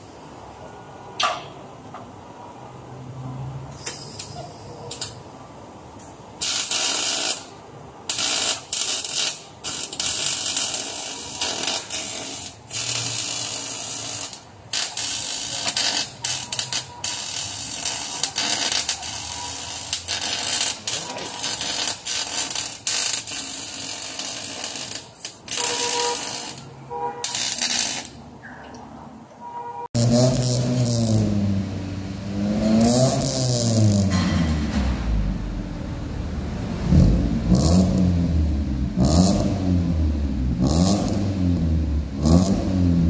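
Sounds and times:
welding arc crackling: 0:06.4 - 0:28.2, 0:30.0 - 0:31.4, 0:32.6 - 0:34.5.

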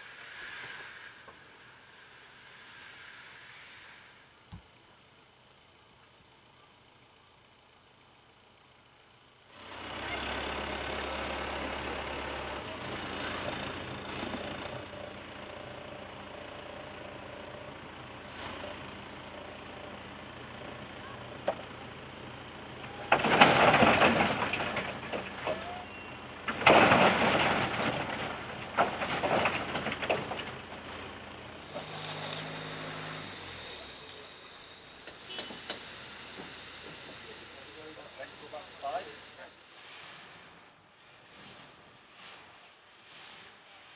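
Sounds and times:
rough rushing steam bursts: 0:00.0 - 0:04.4, 0:31.6 - 0:43.9
steam hissing from locomotive: 0:00.0 - 0:04.5, 0:31.8 - 0:43.9.

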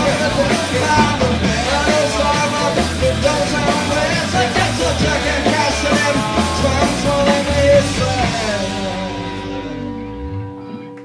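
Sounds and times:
drums: 0:00.0 - 0:11.0
rock band playing: 0:00.0 - 0:11.0
guitar chord ringing: 0:08.5 - 0:11.0.

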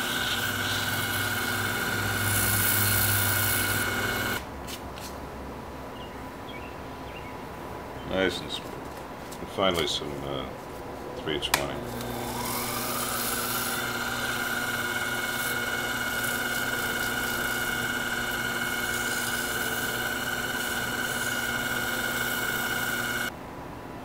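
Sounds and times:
sandpaper hissing on wood: 0:00.0 - 0:01.3
lathe motor whining: 0:00.0 - 0:04.4, 0:11.8 - 0:23.3.

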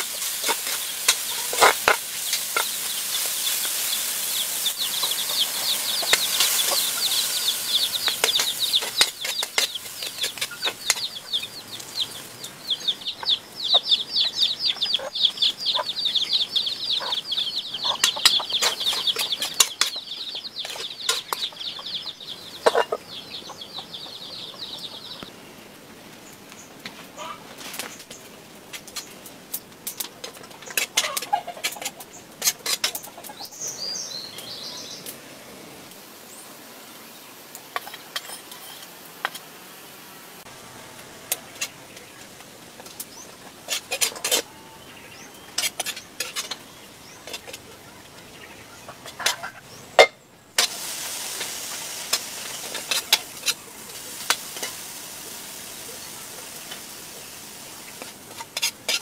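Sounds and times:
utensil scraping a pan: 0:00.0 - 0:11.1, 0:30.6 - 0:33.0, 0:37.8 - 0:38.9, 0:45.4 - 0:47.6, 0:50.6 - 0:54.8, 0:57.7 - 0:59.0
food sizzling in a pan: 0:00.0 - 0:13.8, 0:35.8 - 0:44.4, 0:50.0 - 0:59.0.

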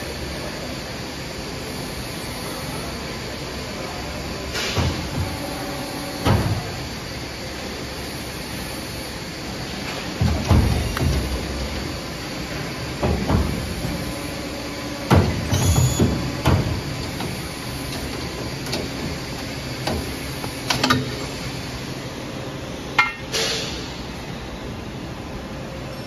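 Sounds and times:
workshop hum: 0:00.0 - 0:26.0
metal clunks and knocks: 0:10.1 - 0:11.9, 0:23.0 - 0:23.6.

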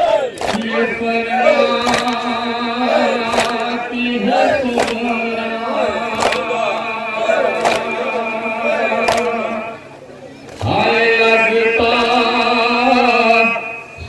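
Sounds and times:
men chanting in unison: 0:00.0 - 0:10.0, 0:10.6 - 0:14.0
sharp chest-beats: 0:04.5 - 0:09.5.

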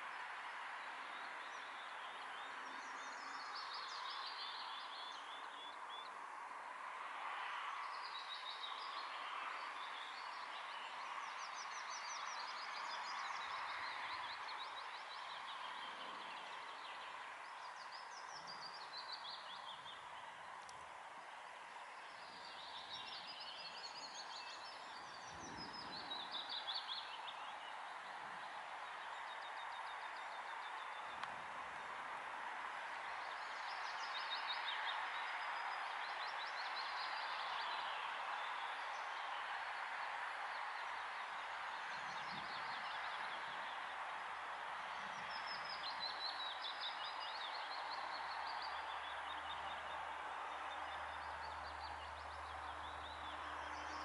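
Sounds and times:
songbirds singing trills: 0:22.0 - 0:28.1.

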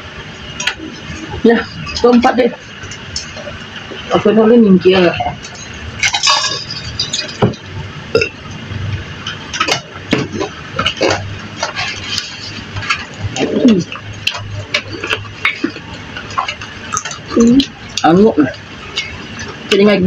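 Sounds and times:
plates and cutlery clinking: 0:05.2 - 0:08.3.

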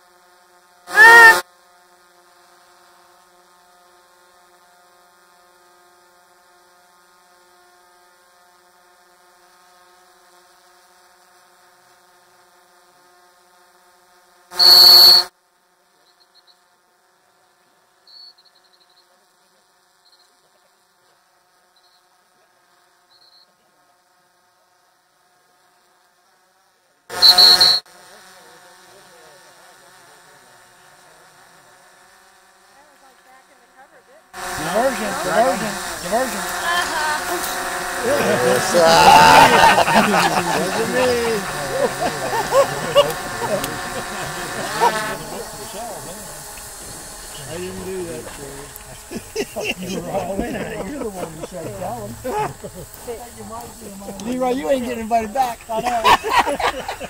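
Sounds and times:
drone propellers buzzing: 0:34.4 - 0:57.0.

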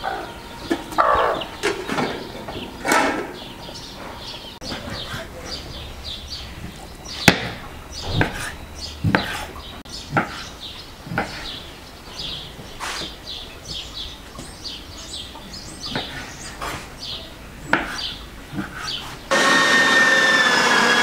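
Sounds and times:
small birds chirping: 0:00.0 - 0:19.3.

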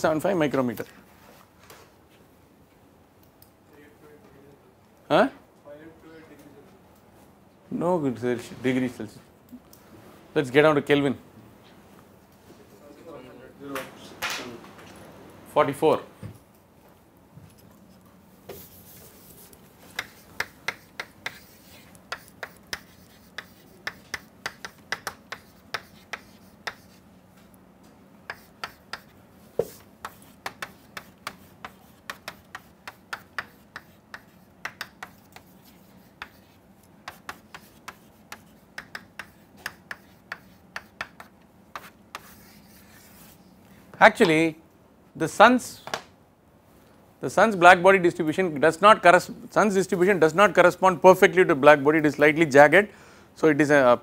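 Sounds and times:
faint steady hum: 0:00.0 - 0:54.0
chalk tapping on blackboard: 0:18.5 - 0:27.0, 0:28.2 - 0:43.3.

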